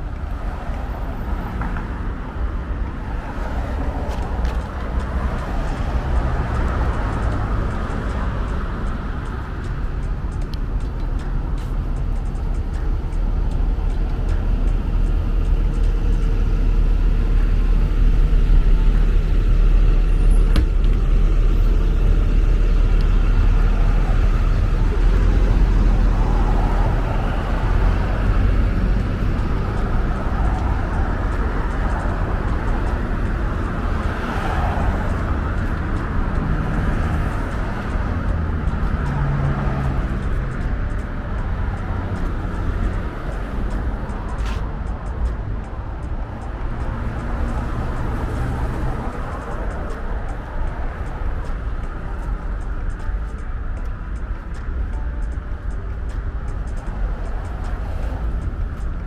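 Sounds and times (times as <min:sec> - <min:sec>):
city street traffic rumble: 0:00.0 - 0:59.0.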